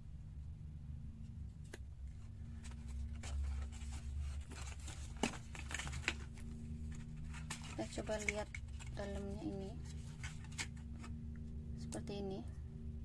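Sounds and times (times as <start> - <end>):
steady low hum: 0.0 - 13.0
rustling cardboard and plastic bags: 2.1 - 11.2.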